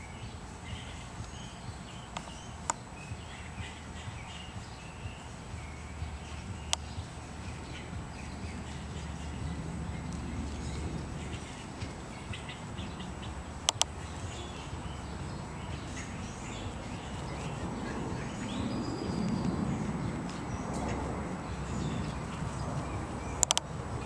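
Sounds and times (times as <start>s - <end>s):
bird chirps: 0.0s - 24.0s
low background rumble: 0.0s - 24.0s
sharp clicks: 6.7s - 7.1s, 13.6s - 14.4s, 23.4s - 23.7s.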